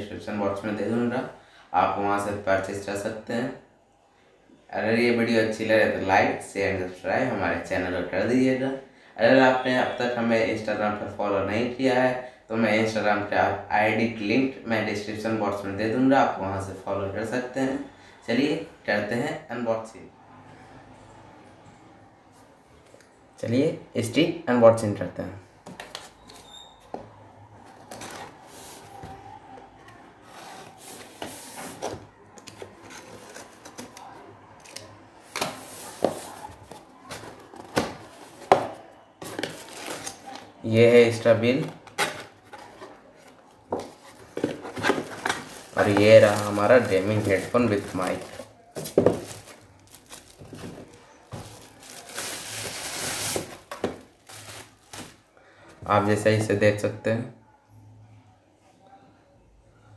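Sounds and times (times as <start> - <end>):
cardboard and tape rustling: 29.9 - 40.5, 41.6 - 55.3
bubble wrap crinkling: 43.4 - 55.3.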